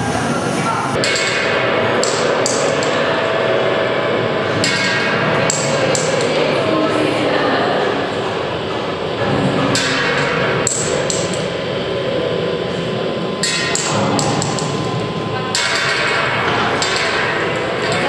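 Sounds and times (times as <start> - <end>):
steady background din: 0.0 - 18.0
sharp knocks: 1.0 - 3.1, 4.5 - 6.6.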